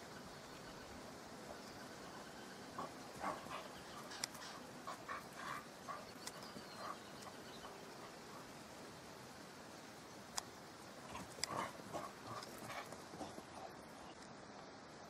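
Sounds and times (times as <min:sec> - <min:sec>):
sharp clicks: 0:10.3 - 0:10.6.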